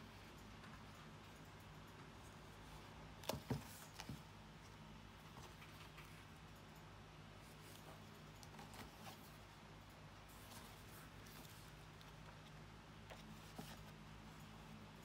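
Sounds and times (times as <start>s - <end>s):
low steady hum: 0.0s - 15.0s
notebook rustling: 3.2s - 4.7s, 7.4s - 9.6s, 10.2s - 14.7s.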